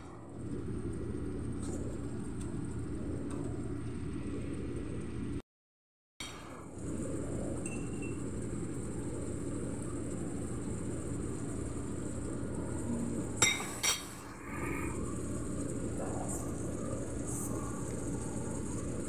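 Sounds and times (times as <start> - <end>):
food cooking in a pot hissing: 6.5 - 19.0.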